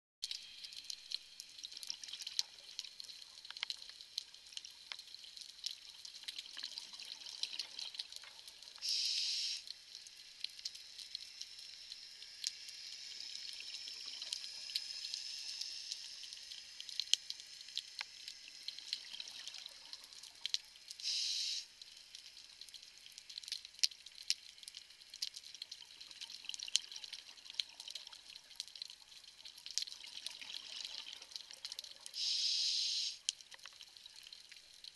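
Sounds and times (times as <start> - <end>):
crackle of snapping shrimp: 0.2 - 32.4, 33.1 - 34.9
loud bursts of hiss: 8.8 - 9.6, 21.0 - 21.7, 32.2 - 33.2.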